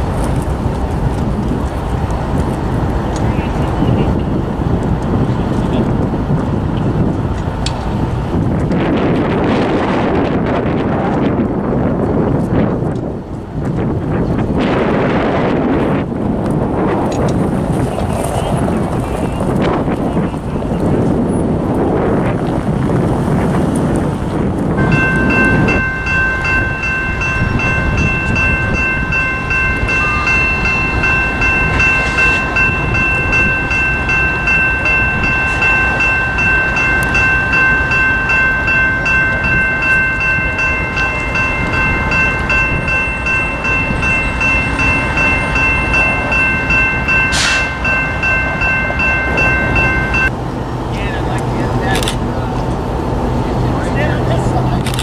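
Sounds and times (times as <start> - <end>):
railroad crossing bell ringing: 24.6 - 52.7.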